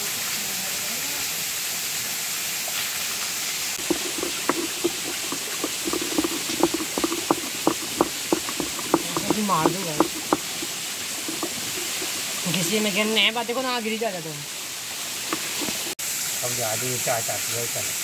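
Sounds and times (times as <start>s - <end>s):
spoon knocking metal pan: 3.8s - 12.3s
onions sizzling in oil: 9.3s - 18.0s.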